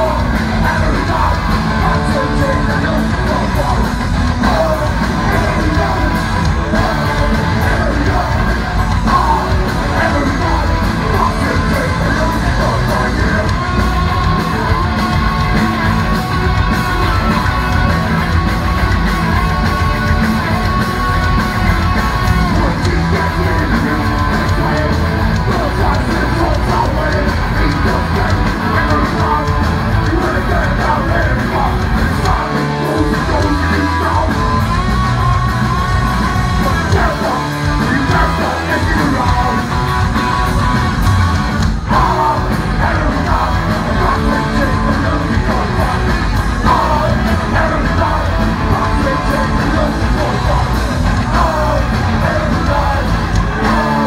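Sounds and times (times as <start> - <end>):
punk band playing: 0.0 - 54.0
shouted sung vocals: 0.0 - 54.0.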